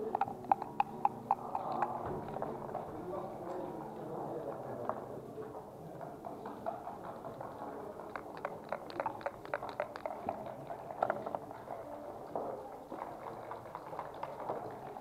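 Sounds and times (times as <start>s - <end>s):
checkers clicking on board: 0.0s - 2.4s, 8.1s - 10.4s
dice rattling in cup: 0.0s - 2.4s, 8.0s - 11.4s
murmur of voices: 0.0s - 15.0s.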